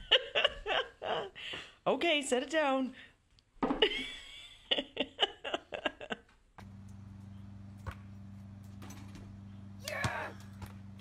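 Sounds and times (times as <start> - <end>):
steady low hum: 6.6 - 11.0.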